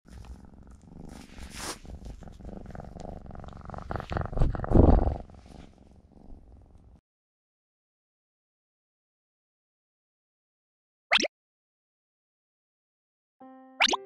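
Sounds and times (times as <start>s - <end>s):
kitten purring: 0.1s - 7.0s.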